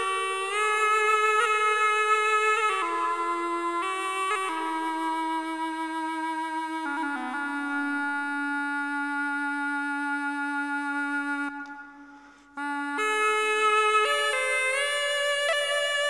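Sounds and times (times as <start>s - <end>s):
double-reed wind instrument notes: 0.0s - 16.0s.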